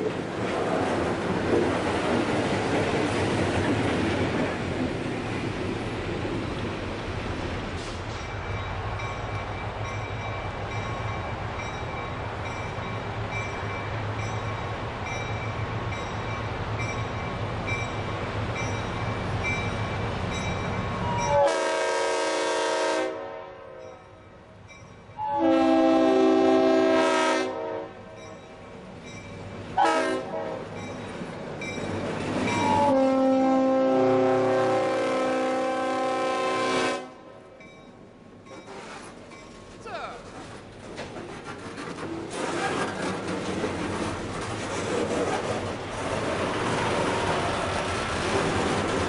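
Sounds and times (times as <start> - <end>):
locomotive engine and wheels rumbling: 0.0 - 22.8, 23.8 - 49.0
locomotive air horn blasts: 21.3 - 23.9, 25.2 - 28.0, 29.8 - 30.6, 32.7 - 37.2.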